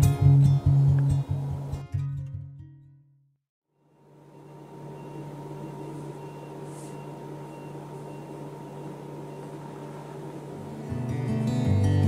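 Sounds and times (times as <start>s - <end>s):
low electrical hum: 3.8s - 11.9s.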